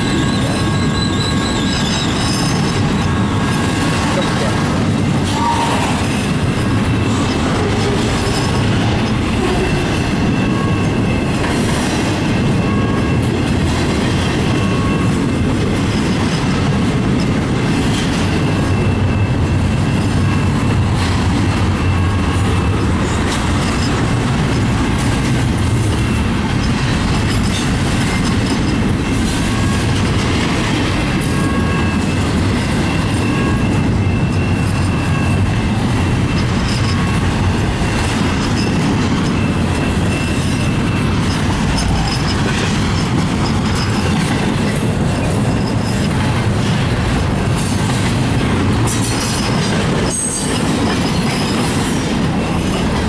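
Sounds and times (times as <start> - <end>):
high wheel squeals: 0.0 - 4.6
train wheels rumbling on rail: 0.0 - 53.0.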